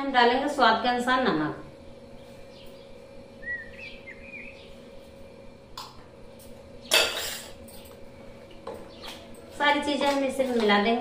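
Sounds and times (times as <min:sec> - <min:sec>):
metallic clank with ring: 0:06.9 - 0:07.9
steel kitchenware clinking: 0:06.9 - 0:07.9.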